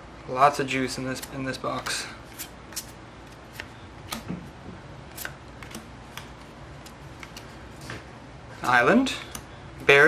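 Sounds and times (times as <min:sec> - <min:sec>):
cards being flipped: 0:01.1 - 0:04.3, 0:05.1 - 0:08.1.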